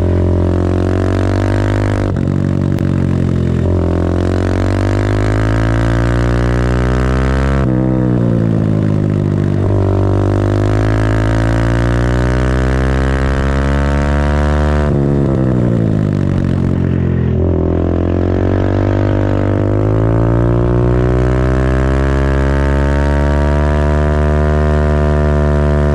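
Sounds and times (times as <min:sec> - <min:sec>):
minibike engine revving: 0:00.0 - 0:25.9.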